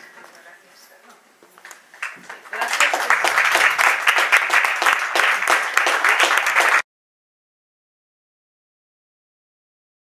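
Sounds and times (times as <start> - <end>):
audience applauding: 2.0 - 6.9.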